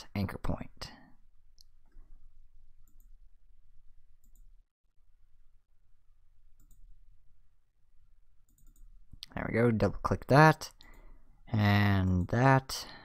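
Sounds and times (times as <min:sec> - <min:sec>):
computer mouse clicks: 0:02.8 - 0:03.2, 0:04.2 - 0:04.5, 0:06.6 - 0:06.9, 0:08.5 - 0:08.9.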